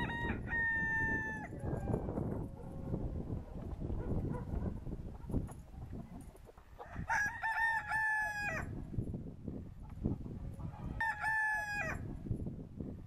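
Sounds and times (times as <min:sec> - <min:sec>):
rooster crowing: 0:00.0 - 0:02.3, 0:06.8 - 0:08.7, 0:10.8 - 0:12.1.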